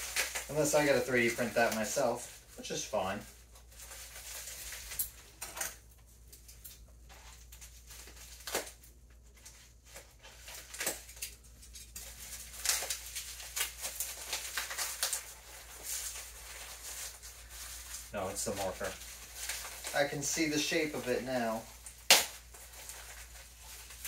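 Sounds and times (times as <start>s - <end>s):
packaging wrap rustling and crinkling: 0.0s - 24.0s.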